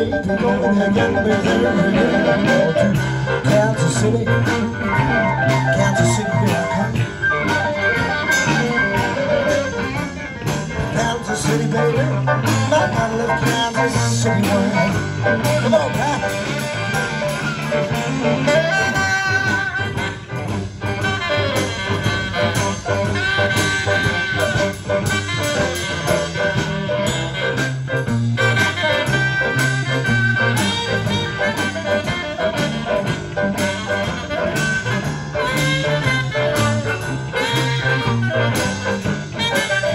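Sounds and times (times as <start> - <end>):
rock and roll band playing: 0.0 - 39.9
saxophone: 0.0 - 39.9.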